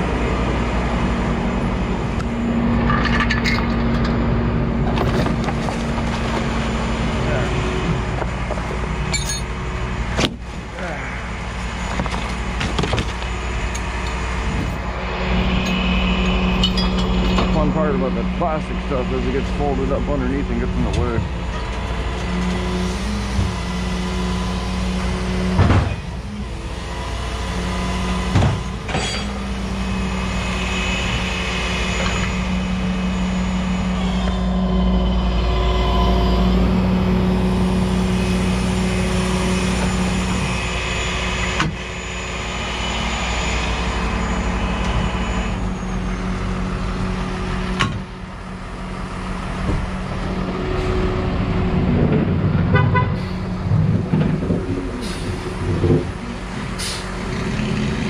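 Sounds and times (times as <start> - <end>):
truck engine running: 0.0 - 58.0
whine: 0.0 - 58.0
sharp metal clanks: 15.6 - 17.7, 28.9 - 29.4.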